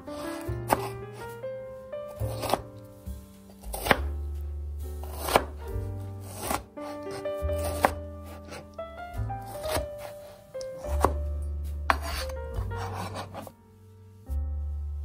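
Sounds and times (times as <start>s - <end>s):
knife cutting on plastic board: 0.2s - 1.0s, 2.2s - 2.6s, 3.6s - 4.1s, 5.0s - 5.6s, 6.2s - 8.7s, 9.5s - 11.2s, 11.9s - 13.5s.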